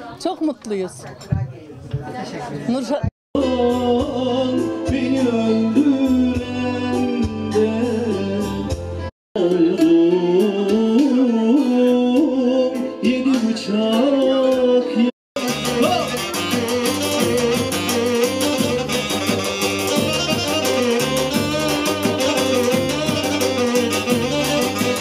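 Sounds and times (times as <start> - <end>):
singing over a steady beat: 3.4 - 18.9.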